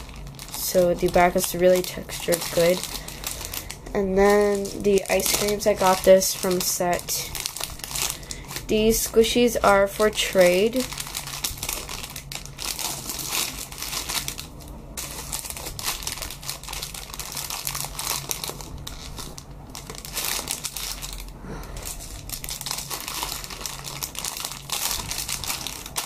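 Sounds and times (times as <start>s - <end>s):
plastic bags crinkling: 0.0s - 26.0s.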